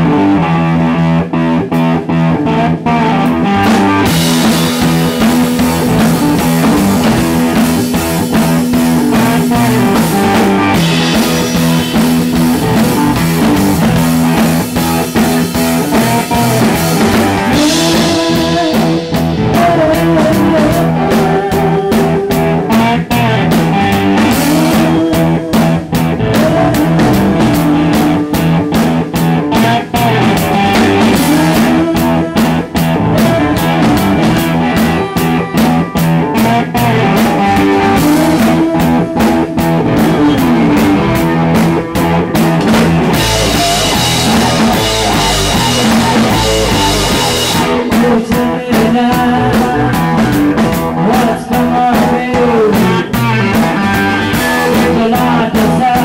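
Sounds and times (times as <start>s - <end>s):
drum kit: 0.0s - 56.0s
electric guitars: 0.0s - 56.0s
cymbals: 4.0s - 20.2s.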